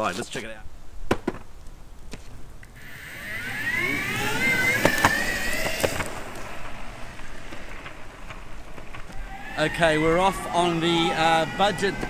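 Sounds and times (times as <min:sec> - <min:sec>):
sharp clicks: 0:02.6 - 0:09.3
electric skateboard motor whine: 0:02.7 - 0:12.0.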